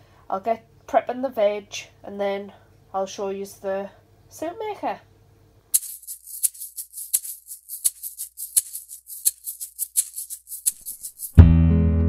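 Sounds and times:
peeler scraping potato skin: 5.8 - 11.4.

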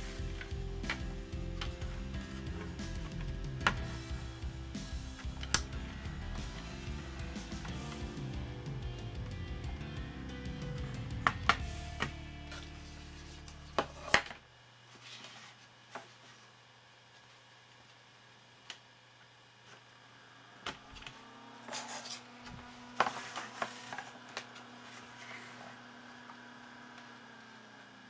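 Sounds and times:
background music: 0.0 - 13.8.

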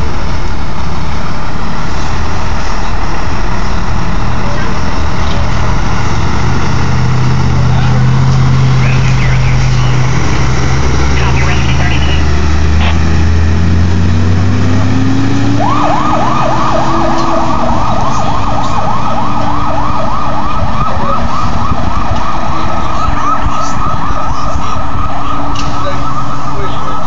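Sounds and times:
truck engine pulling away: 0.0 - 27.0
siren yelping: 3.7 - 5.8, 7.5 - 27.0.

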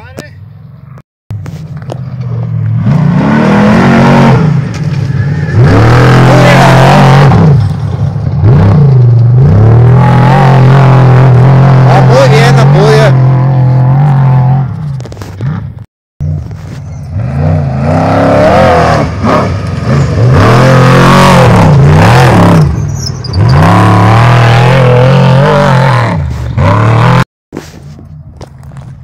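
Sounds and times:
race truck engine revving: 1.8 - 27.2.

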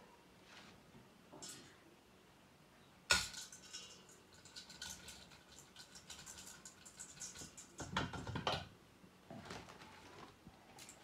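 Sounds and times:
rice pattering into metal bowl: 3.1 - 8.6.

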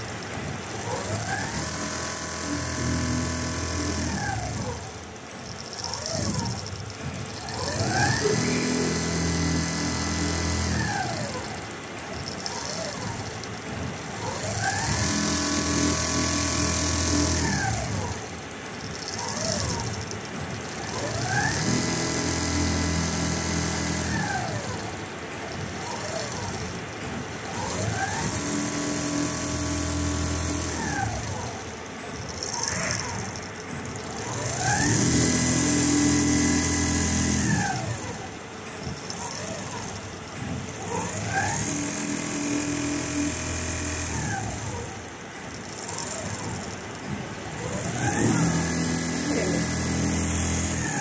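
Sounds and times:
sewing machine whining: 0.0 - 51.0.

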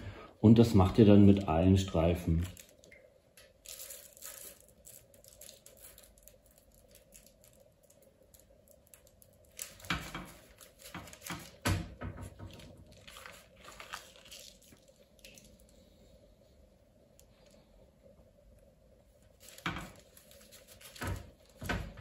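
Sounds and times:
faint steady hum: 0.0 - 22.0
baking parchment crinkling: 2.2 - 16.2, 19.0 - 22.0.

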